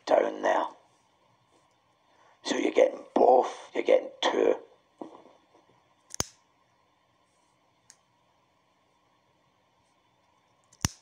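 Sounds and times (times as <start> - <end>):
sharp click: 6.1 - 6.4, 10.8 - 11.0.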